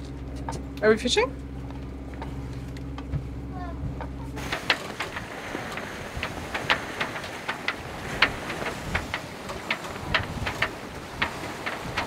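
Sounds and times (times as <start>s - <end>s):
wind and water rushing: 4.2s - 12.0s.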